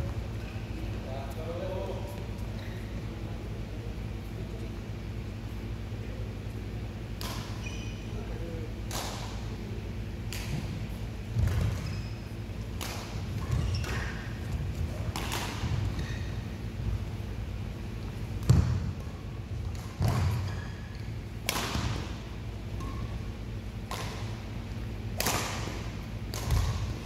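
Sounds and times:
badminton rackets striking shuttlecock: 12.7s - 14.1s, 15.1s - 15.8s, 21.4s - 22.2s, 23.8s - 24.4s, 25.1s - 27.0s.

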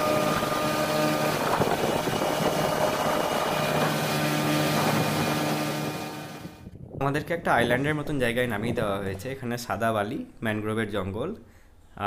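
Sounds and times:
motorboat engine running: 0.0s - 6.6s
water rushing past: 0.0s - 6.6s
wind rushing: 0.0s - 7.3s.

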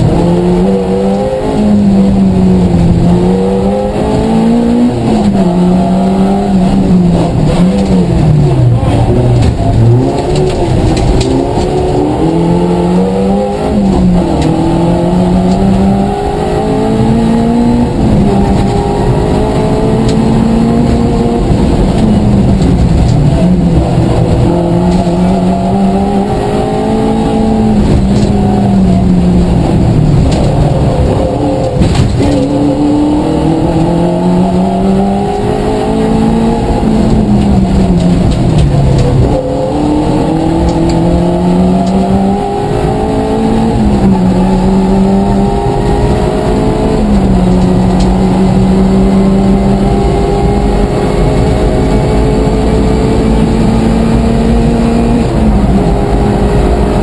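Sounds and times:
car engine revving through gears: 0.0s - 57.0s
tyre and road noise: 0.0s - 57.0s.

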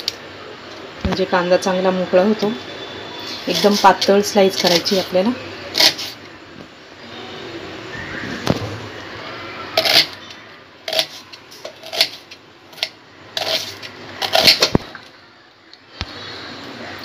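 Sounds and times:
knife slicing onion on board: 5.8s - 6.2s.

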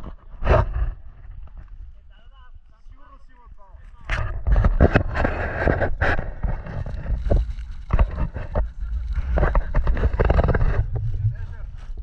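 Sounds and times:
skis scraping on snow: 3.0s - 12.0s
wind buffeting microphone: 4.0s - 12.0s.

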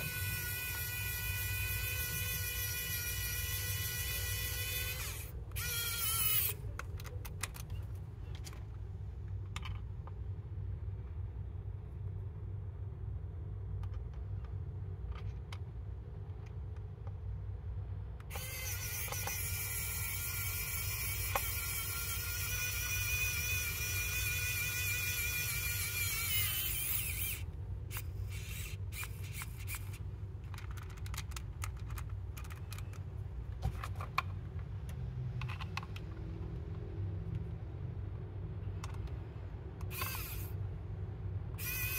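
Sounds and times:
electric screwdriver whine: 0.0s - 6.6s, 18.3s - 30.0s, 39.9s - 40.6s, 41.6s - 41.9s
steady low hum: 0.0s - 41.9s.

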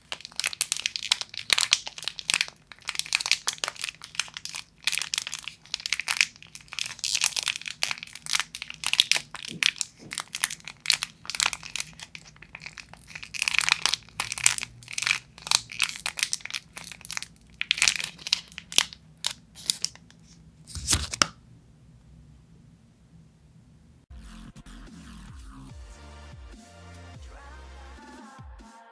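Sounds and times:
plastic wrapper crinkling: 0.0s - 21.4s.

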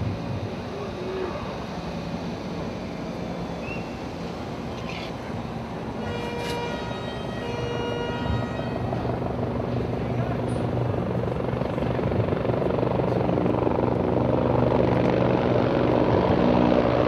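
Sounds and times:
steady pitched tone: 0.0s - 12.8s
helicopter drone: 0.0s - 17.0s
street noise: 0.0s - 17.0s.

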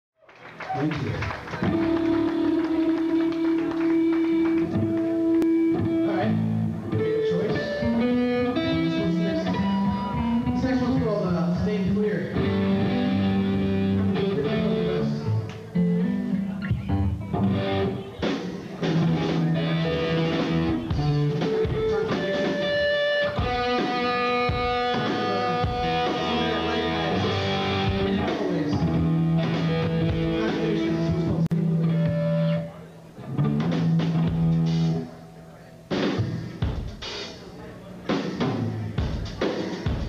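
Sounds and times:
electric guitar: 0.3s - 40.0s
drums: 0.4s - 40.0s
bass guitar: 0.5s - 40.0s.

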